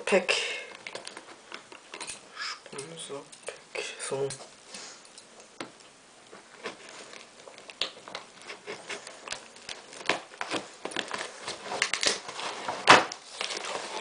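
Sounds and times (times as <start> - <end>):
cardboard cracking: 6.4 - 14.0
cardboard scraping and rustling: 8.2 - 14.0.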